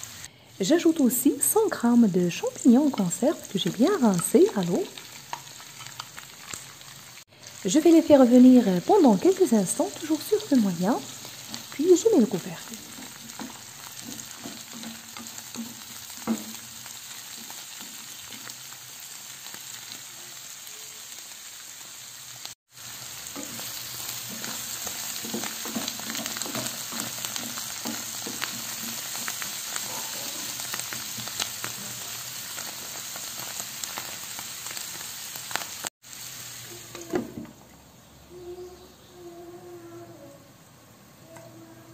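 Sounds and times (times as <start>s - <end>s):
vegetables sizzling in a frying pan: 0.0s - 38.5s
wooden spatula scraping a pan: 23.3s - 32.1s.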